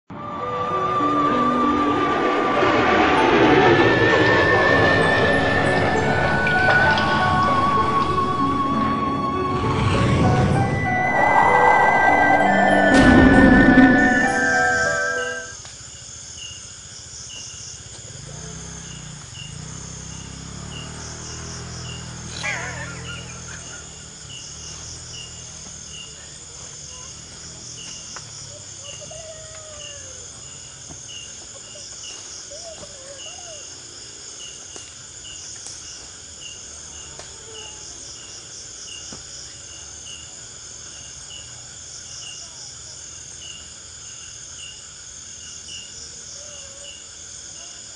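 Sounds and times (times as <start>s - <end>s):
low rumble: 0.1s - 15.5s
pulsing insect trill: 0.7s - 28.8s
brief sharp sound: 1.4s - 15.6s
crickets chirping: 4.4s - 47.9s.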